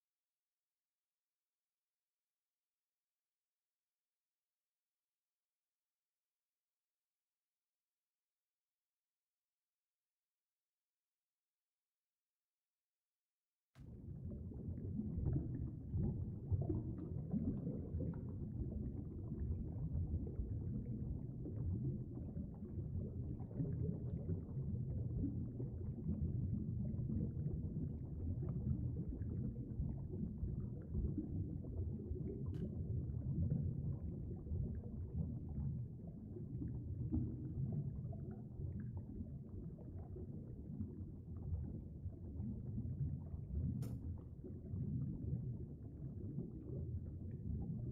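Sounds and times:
muffled underwater stream rumble: 0:13.8 - 0:47.9.

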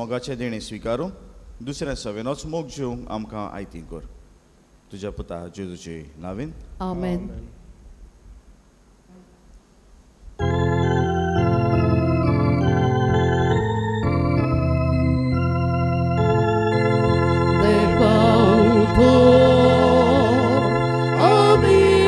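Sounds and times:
church organ chords: 0:10.4 - 0:22.0
person singing: 0:17.6 - 0:22.0.

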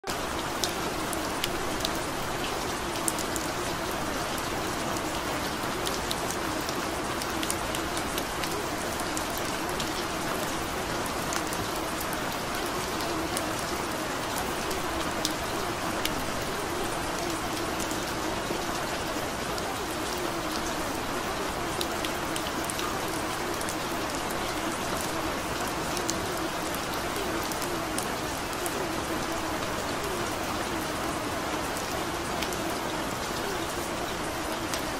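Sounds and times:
steady rain falling: 0:00.0 - 0:34.9.

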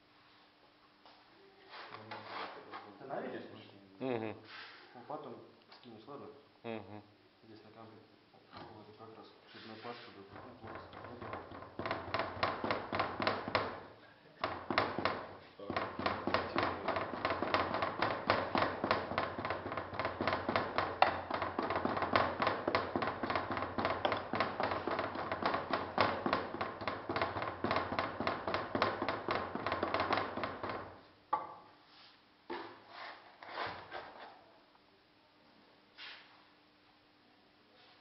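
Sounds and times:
soft scrapes and knocks: 0:01.6 - 0:03.0, 0:09.5 - 0:11.6, 0:31.8 - 0:34.4.

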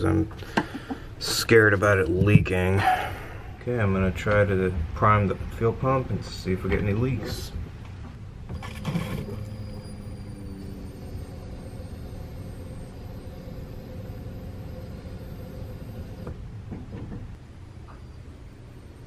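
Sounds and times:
fuel pump humming: 0:08.5 - 0:16.6.

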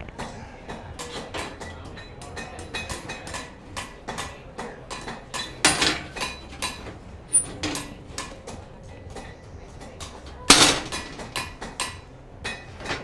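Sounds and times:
steel pieces clanking: 0:05.4 - 0:08.0.

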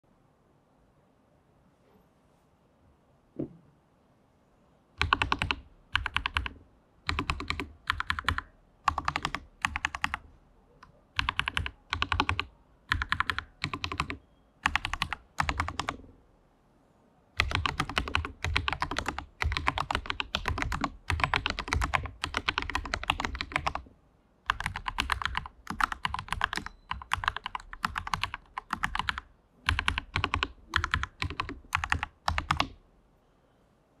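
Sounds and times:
mechanical keyboard typing: 0:05.0 - 0:10.3, 0:11.1 - 0:16.1, 0:17.4 - 0:23.9, 0:24.5 - 0:32.8.

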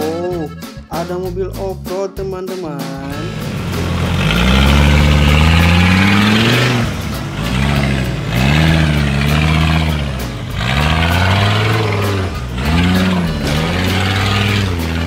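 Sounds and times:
buggy engine revving: 0:03.0 - 0:15.0.

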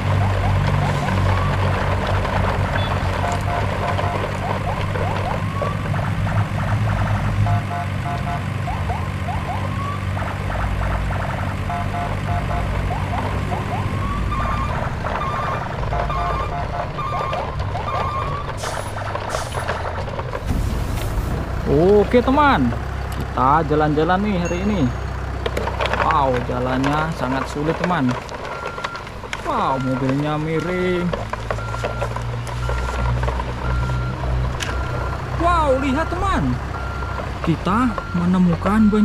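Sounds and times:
truck engine drone: 0:00.0 - 0:39.0
electronic siren beeps and chirps: 0:02.7 - 0:11.0, 0:11.6 - 0:18.5.

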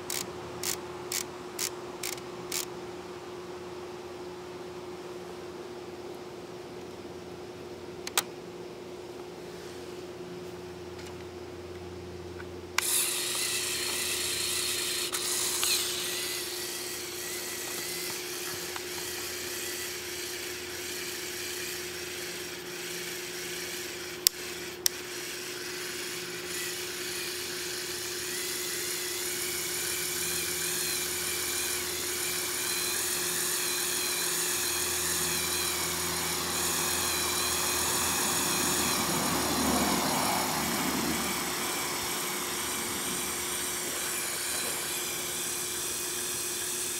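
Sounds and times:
toy electric motor whining: 0:00.0 - 0:02.7, 0:12.8 - 0:46.9.

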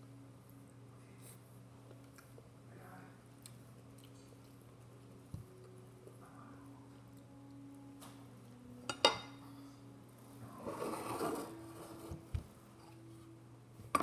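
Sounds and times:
low steady hum: 0:00.0 - 0:14.0
fork scraping ceramic plate: 0:10.6 - 0:12.2.

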